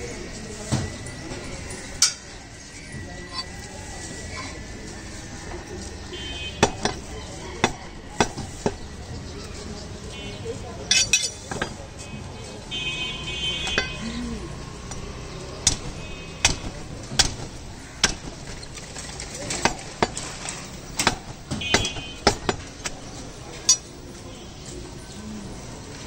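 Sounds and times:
market background noise: 0.0 - 26.0
cleaver chopping meat on block: 6.6 - 8.9, 14.8 - 18.7, 19.5 - 23.0.

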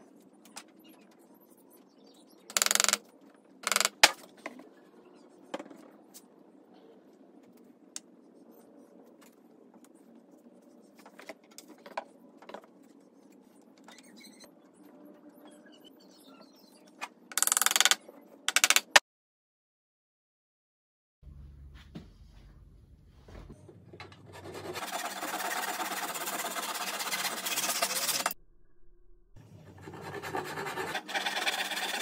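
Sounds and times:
wooden block scraping on wood: 29.8 - 32.0.

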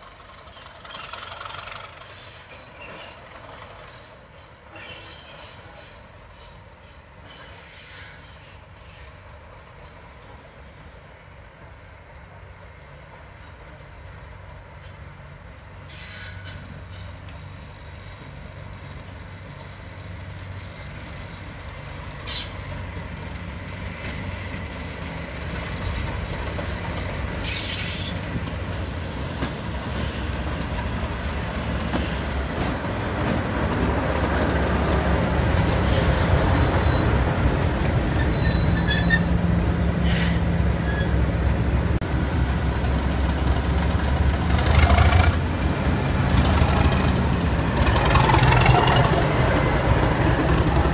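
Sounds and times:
diesel locomotive engine rumble: 0.0 - 50.9
short high squeals and hisses: 2.0 - 6.6, 7.2 - 9.2, 15.8 - 17.1, 27.4 - 28.4, 37.8 - 39.4, 40.0 - 41.2.

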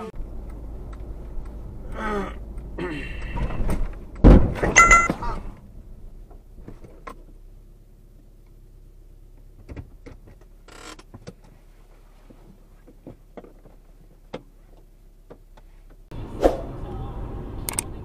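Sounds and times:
car engine hum: 0.0 - 18.0.

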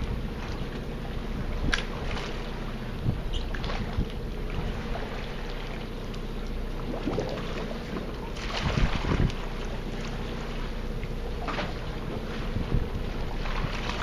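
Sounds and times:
boat machinery humming: 0.0 - 14.0
wind noise on microphone: 3.0 - 4.8, 8.4 - 9.5, 12.2 - 14.0.

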